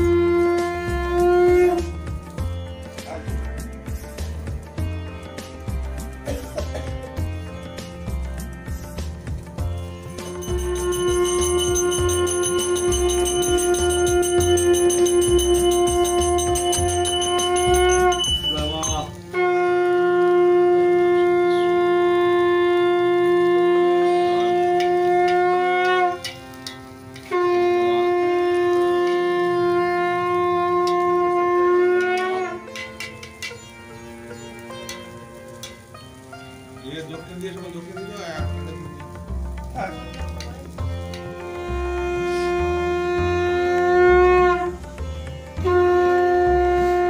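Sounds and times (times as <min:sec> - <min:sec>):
conch shell blasts: 0:10.0 - 0:26.4, 0:27.2 - 0:32.9, 0:41.2 - 0:44.8, 0:45.6 - 0:47.0.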